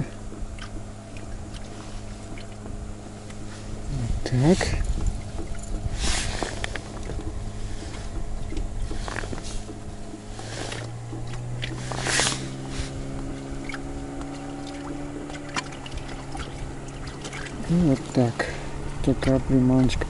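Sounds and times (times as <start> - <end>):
outboard motor running: 0.0 - 20.0
water lapping against boat: 0.0 - 20.0
small clicks and rustles: 4.8 - 17.6.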